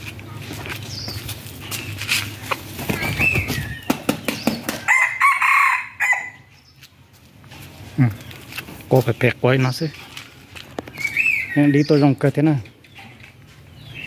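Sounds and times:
clicks and scuffs: 0:00.0 - 0:04.6
rooster crowing: 0:04.8 - 0:06.5.

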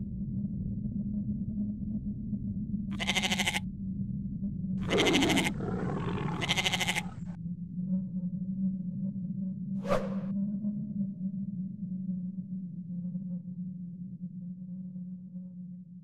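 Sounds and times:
sheep bleating: 0:03.0 - 0:03.6, 0:04.8 - 0:07.3.

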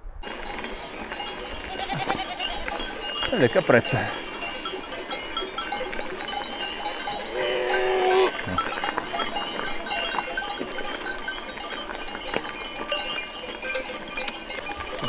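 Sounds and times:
neck bells clinking: 0:00.2 - 0:15.0
goat bleating: 0:01.6 - 0:02.8.

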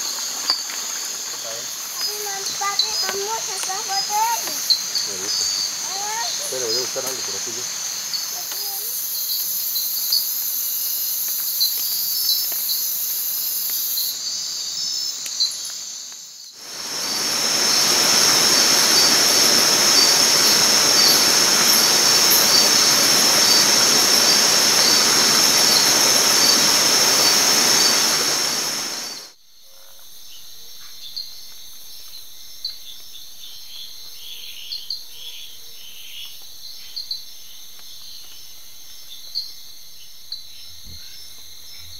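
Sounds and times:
loud even hiss: 0:00.0 - 0:14.2, 0:15.0 - 0:29.4
crickets chirping: 0:00.0 - 0:41.9.

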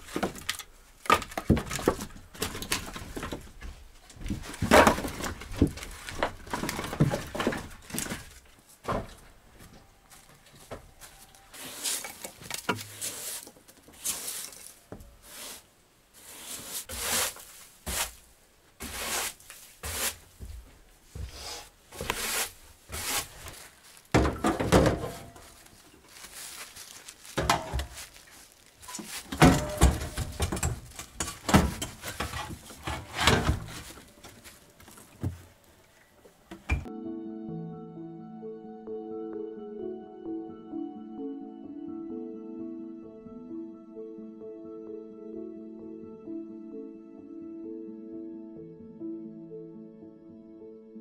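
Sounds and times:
objects knocking and thudding: 0:00.0 - 0:09.3, 0:22.9 - 0:25.6, 0:27.2 - 0:28.2, 0:28.9 - 0:35.5
objects rubbing and scraping: 0:11.5 - 0:18.2, 0:21.2 - 0:24.1.

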